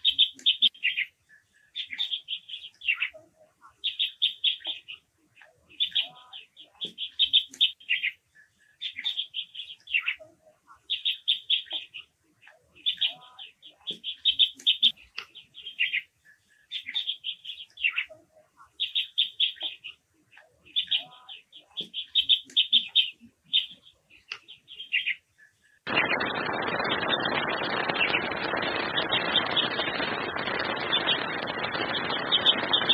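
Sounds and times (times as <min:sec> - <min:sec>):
birds giving high trilled calls: 0:00.0 - 0:01.2, 0:01.8 - 0:03.2, 0:05.7 - 0:08.2, 0:08.8 - 0:10.2, 0:12.8 - 0:16.1, 0:16.7 - 0:20.0, 0:20.7 - 0:25.2, 0:25.9 - 0:32.9
steady rushing noise: 0:25.9 - 0:32.9.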